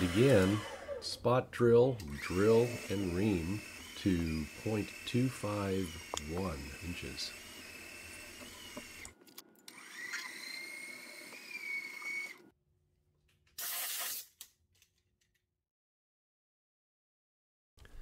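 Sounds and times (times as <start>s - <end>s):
milling machine drilling metal: 0.0s - 1.0s, 2.0s - 9.1s
air hiss blowing chips: 13.6s - 14.2s.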